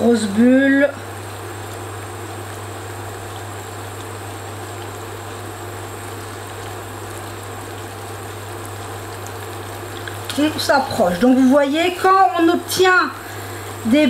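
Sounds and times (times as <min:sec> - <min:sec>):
syrup boiling in saucepan: 0:00.0 - 0:14.0.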